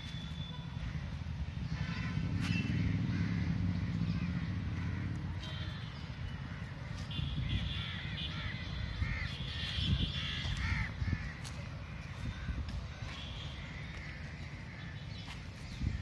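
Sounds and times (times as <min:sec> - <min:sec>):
crows cawing: 0:01.7 - 0:05.4, 0:07.7 - 0:15.1.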